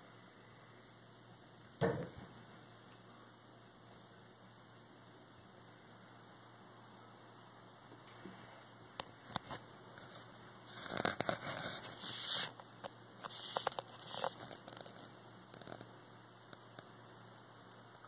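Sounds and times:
rustling and scratching: 0:08.1 - 0:16.9.

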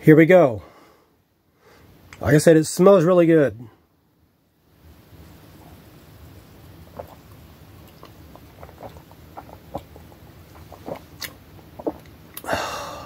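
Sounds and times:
person gulping soda: 0:05.7 - 0:13.0
wet mouth clicks: 0:06.9 - 0:12.6.

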